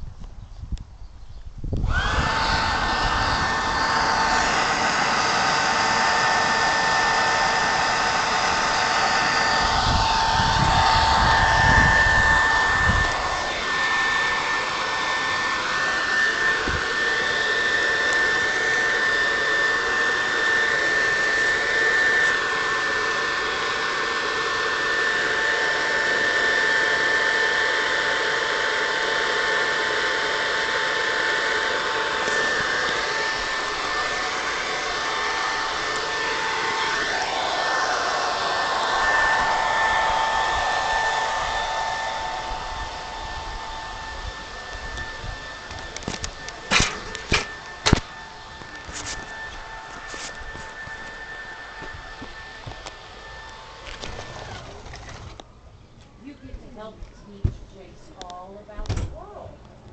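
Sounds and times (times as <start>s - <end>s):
leaf blower whine: 0.0s - 58.8s
gusty rumble: 9.5s - 14.5s.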